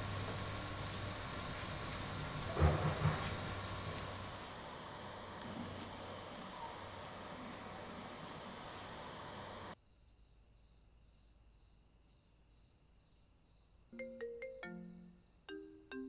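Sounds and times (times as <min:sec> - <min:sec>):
outdoor hiss: 0:00.0 - 0:09.8
insect chirring: 0:00.0 - 0:16.0
marimba-like melody: 0:14.0 - 0:16.0.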